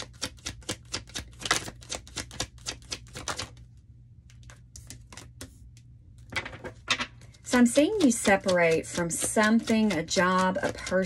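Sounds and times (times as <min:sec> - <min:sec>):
cards being shuffled: 0:00.0 - 0:03.7, 0:04.3 - 0:05.6, 0:06.3 - 0:11.0.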